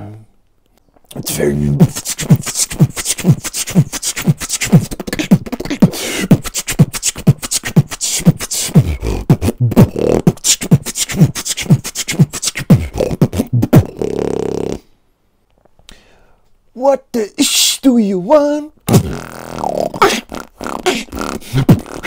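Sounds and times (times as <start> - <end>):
vocal beatboxing: 1.1 - 14.9, 18.9 - 22.0.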